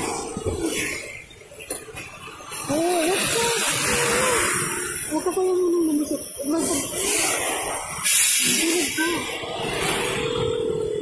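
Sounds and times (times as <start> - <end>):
wind rush on motorcycle: 6.2 - 11.0.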